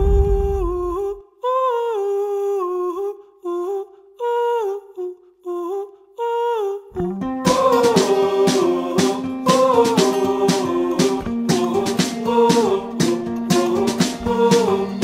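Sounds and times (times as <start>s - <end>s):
deep boom: 0.0s - 1.1s
guitar-backed song: 7.0s - 15.0s.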